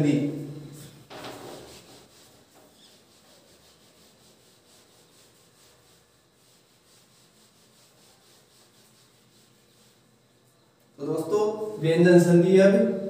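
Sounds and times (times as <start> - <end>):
whiteboard being wiped: 0.0 - 10.4.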